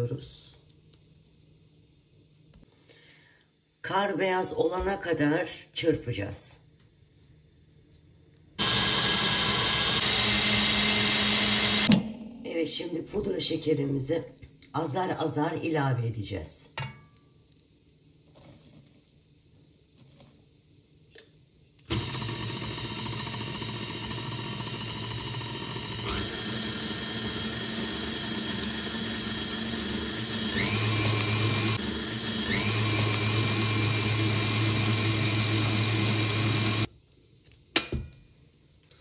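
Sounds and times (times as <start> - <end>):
stand mixer whisking: 8.6 - 11.9, 21.9 - 36.9.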